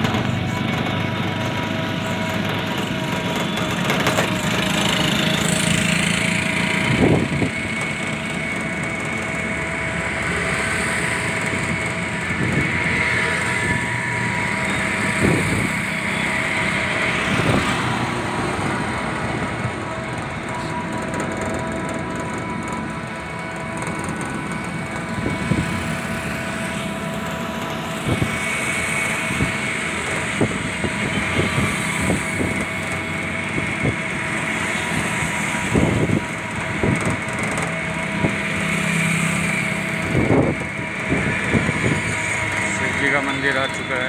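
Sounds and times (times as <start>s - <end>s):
electric motor whine: 0.0s - 44.0s
tyre and wind noise: 39.5s - 42.6s.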